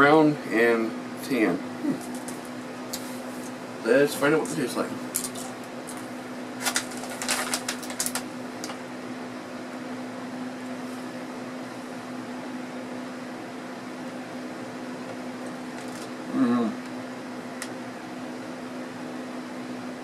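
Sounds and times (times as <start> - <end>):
electric fan humming: 0.0 - 20.0
candy bag crackling: 6.6 - 8.8.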